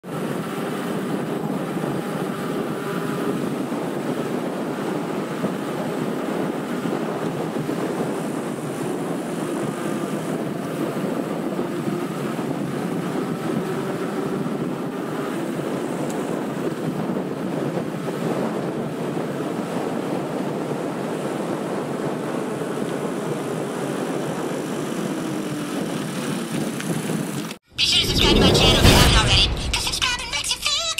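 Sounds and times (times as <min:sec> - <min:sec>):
bike tyres rolling on asphalt: 0:00.0 - 0:27.6
wind buffeting microphone: 0:00.0 - 0:29.8.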